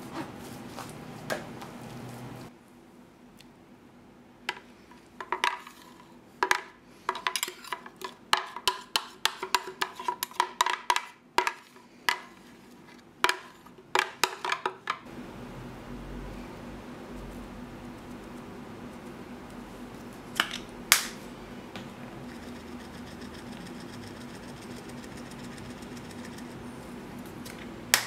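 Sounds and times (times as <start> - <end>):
low steady hum: 15.0 - 28.0.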